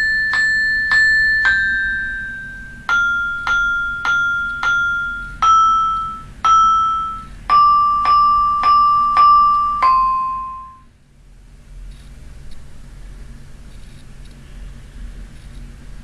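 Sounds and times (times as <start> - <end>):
synthesised vibraphone melody: 0.0 - 10.9.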